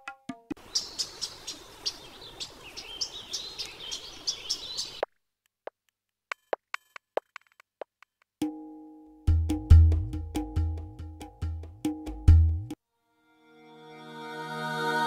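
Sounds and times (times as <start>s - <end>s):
outdoor hiss: 0.6s - 5.0s
birds chirping: 0.6s - 5.1s.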